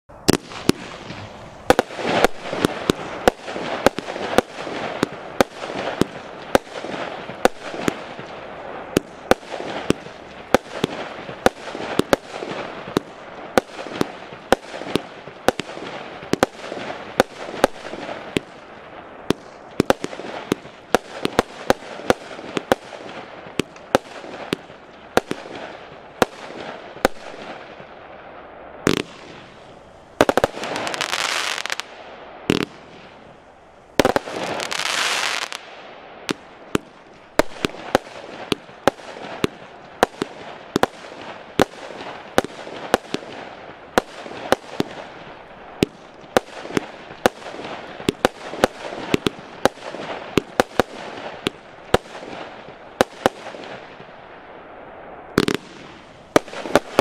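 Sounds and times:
firework shots: 0:00.1 - 0:57.0.

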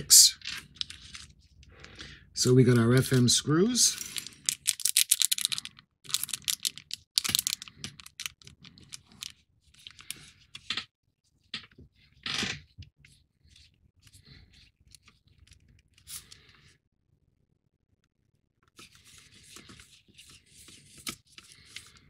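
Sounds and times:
small parts clicking and rattling: 0:00.4 - 0:01.3, 0:04.0 - 0:10.8.

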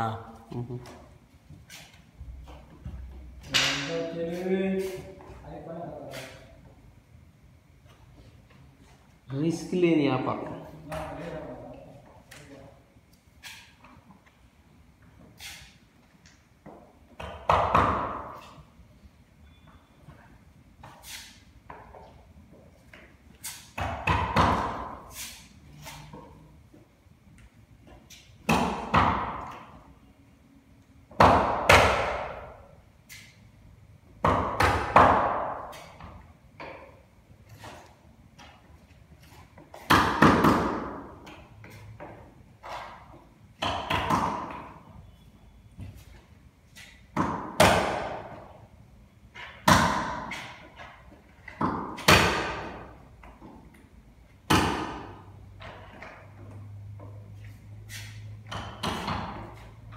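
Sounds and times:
sharp knocks in echoing room: 0:02.2 - 0:05.1, 0:16.6 - 0:18.6, 0:22.9 - 0:25.1, 0:28.4 - 0:29.9, 0:31.0 - 0:32.8, 0:34.0 - 0:37.1, 0:39.6 - 0:45.0, 0:46.8 - 0:48.6, 0:49.3 - 0:53.8, 0:54.4 - 0:57.3, 0:58.4 - 0:59.9
knocks on wooden boards: 0:17.2 - 0:18.4, 0:23.8 - 0:24.9, 0:31.1 - 0:32.4, 0:34.2 - 0:35.7.

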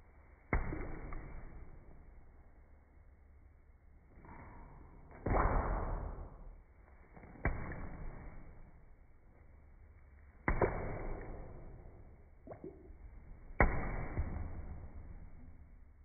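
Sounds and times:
slow motion punch thuds: 0:13.5 - 0:15.4.

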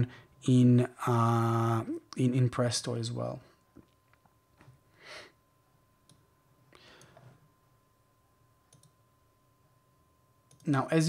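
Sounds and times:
computer mouse clicks: 0:08.7 - 0:09.0, 0:10.5 - 0:10.7.

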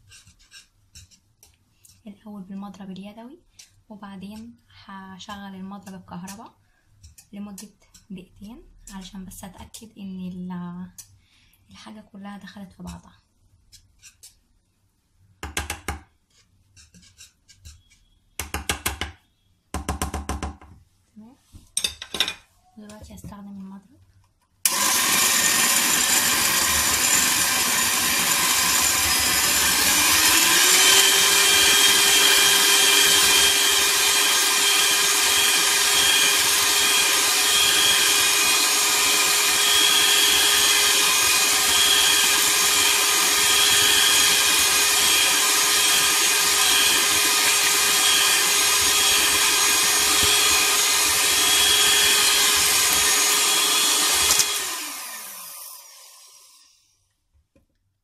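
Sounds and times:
electric hand mixer running: 0:24.7 - 0:56.8.

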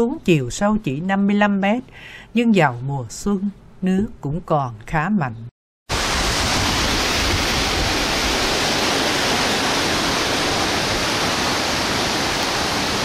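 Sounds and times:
waterfall rushing: 0:05.9 - 0:13.0.

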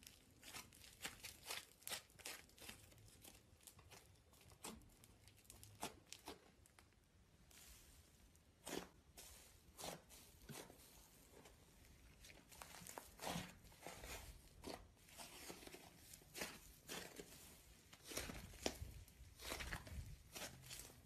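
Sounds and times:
slime squished by hand: 0:00.0 - 0:07.0.

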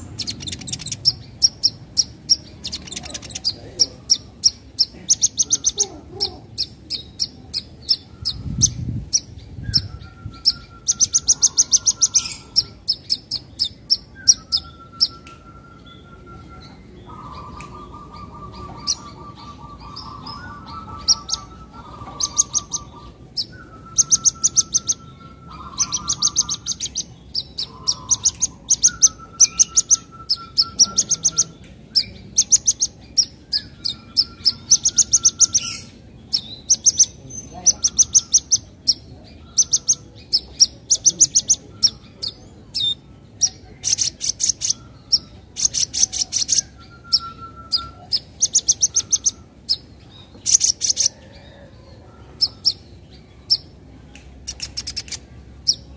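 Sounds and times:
bird high chattering notes: 0:00.0 - 0:51.2
bird lower whistled notes: 0:14.0 - 0:26.6, 0:46.4 - 0:49.5.

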